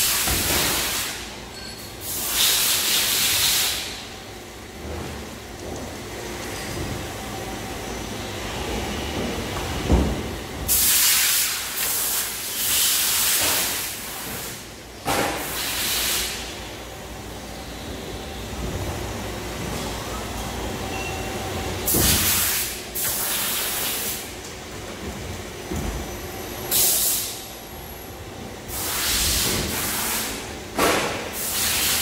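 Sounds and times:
compressed air hissing: 10.7 - 14.2, 26.7 - 27.4, 28.7 - 30.4.

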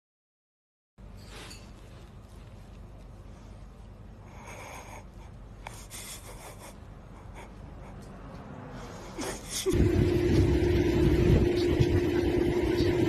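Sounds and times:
soft breaths: 1.2 - 9.6
loud engine drone: 9.7 - 13.0.

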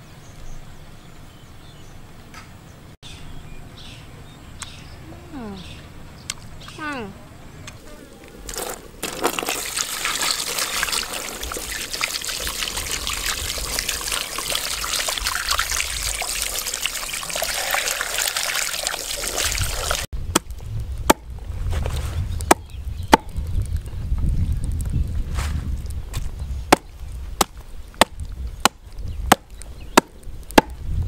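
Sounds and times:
hands scrubbing: 8.4 - 20.1
water splashing in a basin: 8.5 - 20.1
cleaver chopping on wooden block: 22.5 - 23.3, 26.7 - 30.8.

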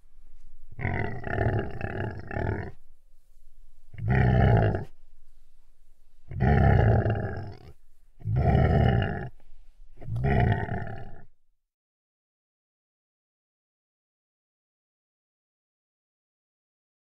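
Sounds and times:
large animal calling: 0.8 - 2.8, 4.0 - 4.9, 6.3 - 9.4, 10.0 - 11.3.

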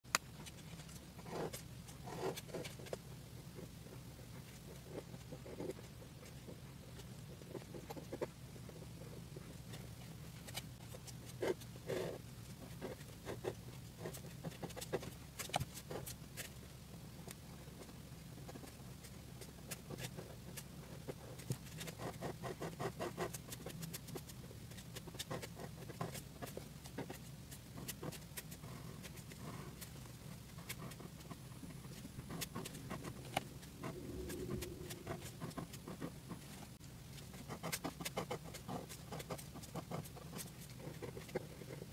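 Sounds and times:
pen scratching and tapping on paper: 0.2 - 16.6, 17.2 - 41.9
low steady hum: 23.3 - 41.9
low hum: 31.6 - 36.8.

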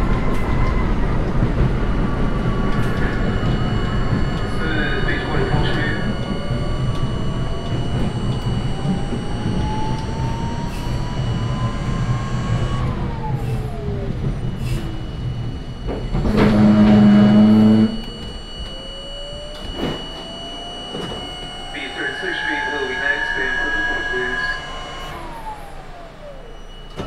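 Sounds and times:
train wheels rumbling on rail: 0.0 - 18.9
loud low steady tone: 0.0 - 27.0
train motor whine: 0.0 - 27.0.

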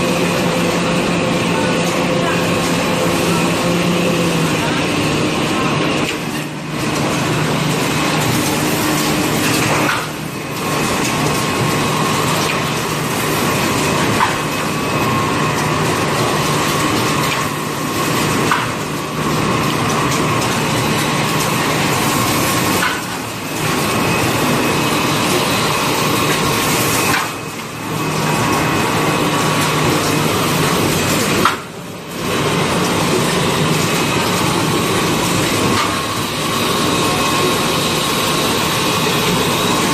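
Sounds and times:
packing machine mechanical din: 0.0 - 39.9.

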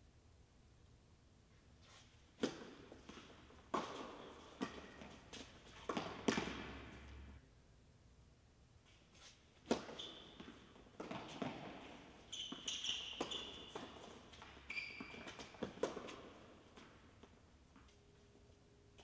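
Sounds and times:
shoes squeaking on court: 1.8 - 7.2, 9.1 - 18.0
racket hitting tennis ball: 2.4 - 7.2, 9.6 - 17.3
tennis ball bouncing: 2.4 - 7.2, 9.7 - 17.9.

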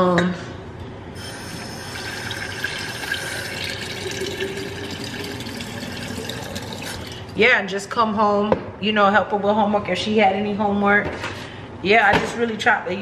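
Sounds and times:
tap running water: 1.2 - 7.4.

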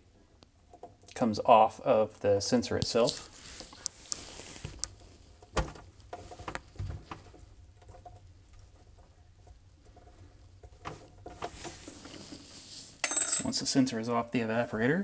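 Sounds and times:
hands rustling wire: 2.9 - 13.0.

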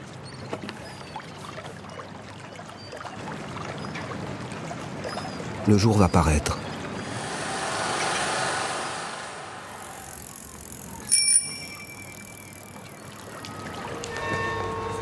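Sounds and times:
small metal bell ringing: 11.0 - 12.9.

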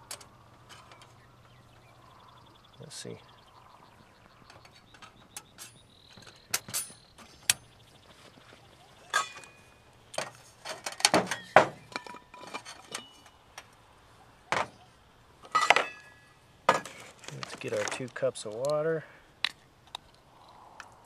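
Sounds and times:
metal plate clinking on stove: 9.1 - 9.6.

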